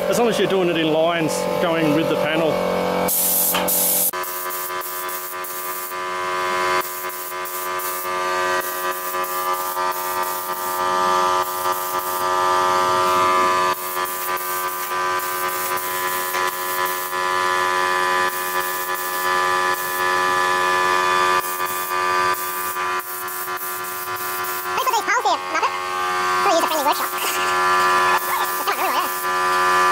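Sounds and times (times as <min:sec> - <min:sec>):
air compressor drone: 0:00.0 - 0:29.9
spray gun hissing: 0:03.1 - 0:06.0, 0:06.8 - 0:10.8, 0:11.4 - 0:12.3, 0:13.7 - 0:17.2, 0:21.4 - 0:25.0, 0:26.6 - 0:29.3.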